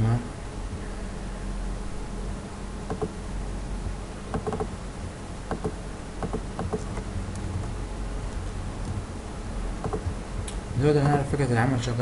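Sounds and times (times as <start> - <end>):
low electrical hum: 0.0 - 12.0
mouse and keyboard clicks: 2.9 - 3.1, 4.4 - 4.7, 9.8 - 10.1.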